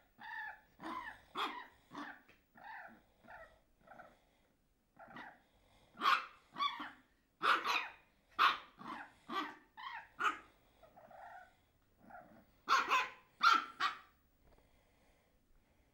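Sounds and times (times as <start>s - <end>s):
puppy barking and yapping: 0.0s - 3.0s, 6.0s - 10.5s, 12.2s - 14.2s.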